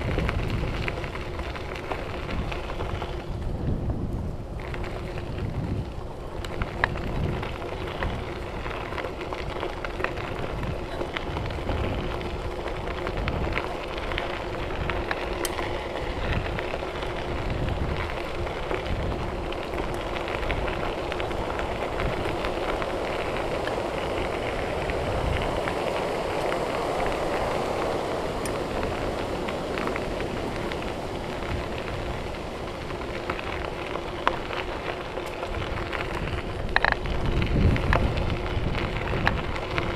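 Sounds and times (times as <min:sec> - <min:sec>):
bike tyres crunching on gravel: 0:00.0 - 0:39.9
wind buffeting microphone: 0:00.0 - 0:39.9.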